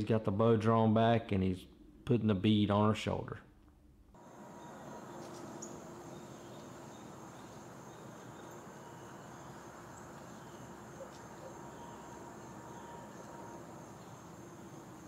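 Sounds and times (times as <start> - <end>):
high-pitched insect chorus trilling: 4.2 - 15.0.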